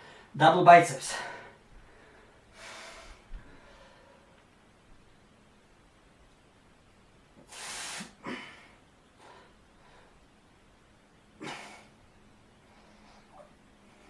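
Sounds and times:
man breathing forcefully: 1.3 - 4.3.

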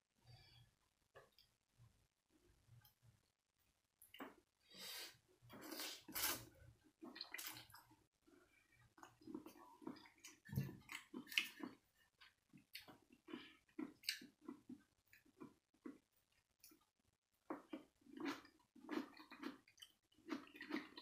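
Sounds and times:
slurping and chewing: 4.2 - 16.0, 17.5 - 21.0.

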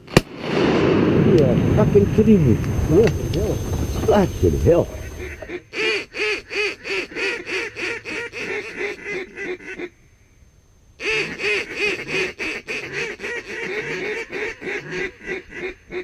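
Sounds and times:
duck quacking: 4.1 - 10.0, 11.0 - 16.0.

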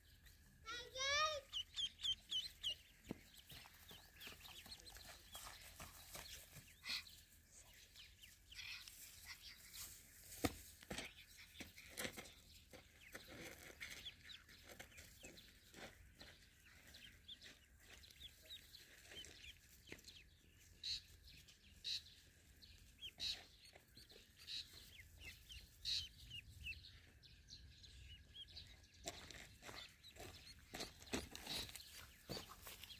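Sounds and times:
ducklings peeping: 0.0 - 9.9, 10.9 - 32.9
rustling in dry grass: 8.6 - 10.9.

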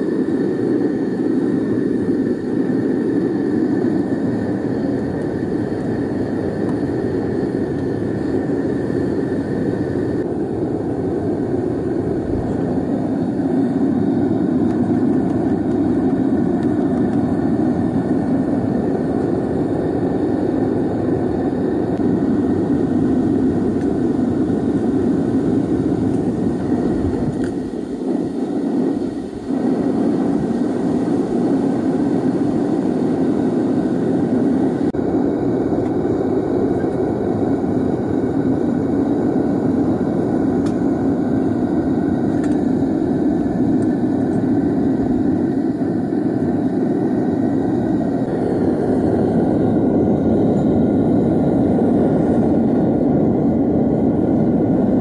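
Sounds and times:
gas burner rushing: 0.0 - 55.0.

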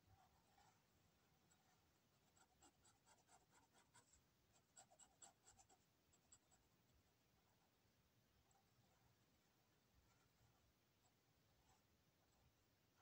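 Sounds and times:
pen nib scratching on paper: 1.5 - 6.7.

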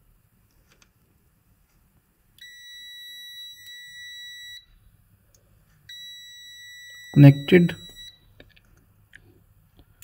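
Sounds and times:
multimeter continuity beep: 2.4 - 4.7, 5.9 - 8.3.

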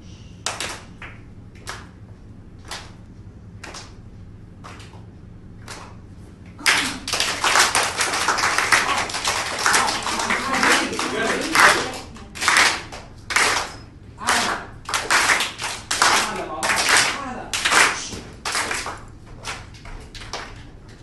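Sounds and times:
single hand claps: 0.4 - 1.9, 2.6 - 3.0, 3.6 - 4.0, 4.6 - 5.0, 5.6 - 6.0, 6.6 - 20.6
crowd clapping: 2.6 - 3.0, 3.6 - 4.0, 4.6 - 5.0, 5.6 - 6.0, 6.6 - 20.8.

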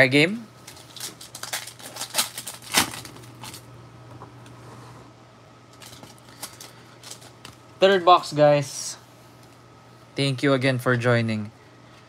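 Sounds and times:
foil wrappers crinkling: 0.6 - 3.7, 5.7 - 7.6.

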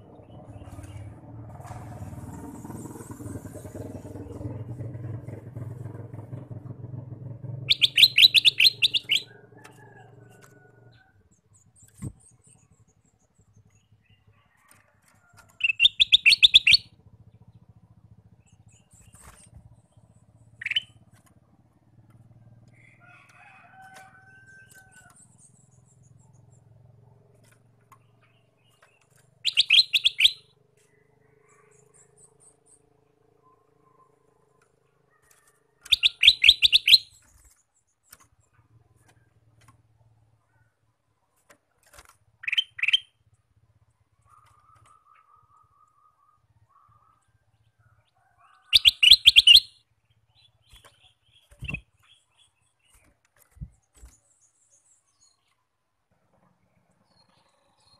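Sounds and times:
low engine hum: 0.0 - 48.1
soft bird calls: 7.6 - 21.3, 28.0 - 55.7.

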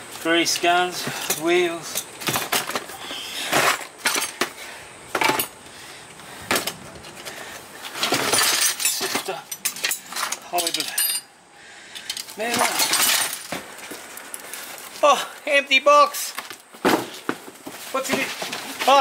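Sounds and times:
metal tools clinking and clattering: 1.0 - 2.9, 3.5 - 4.6, 6.5 - 11.3, 12.0 - 13.6.

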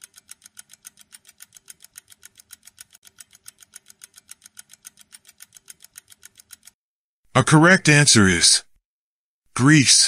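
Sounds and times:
rapid clock ticking: 0.0 - 6.8.

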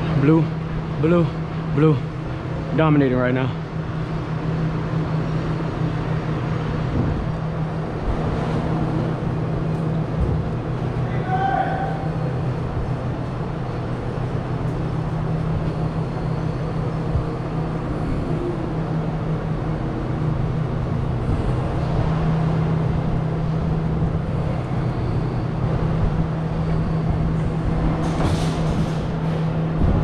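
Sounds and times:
ventilation machinery hum: 0.0 - 30.0.

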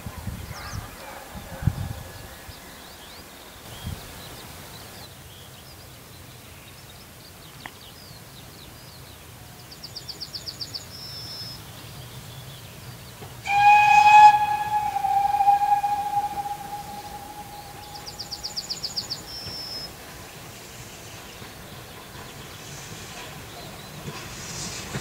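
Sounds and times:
steam locomotive whistle blast: 13.4 - 19.6.

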